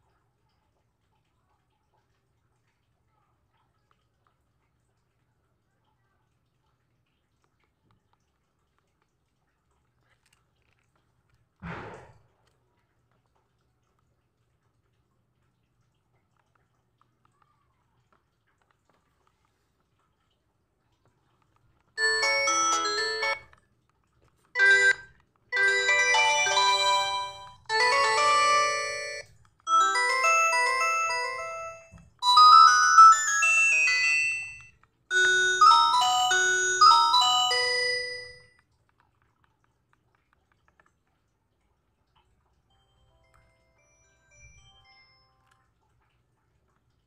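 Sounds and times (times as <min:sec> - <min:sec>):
phone ringtones: 0:22.0 - 0:23.5, 0:24.6 - 0:38.6.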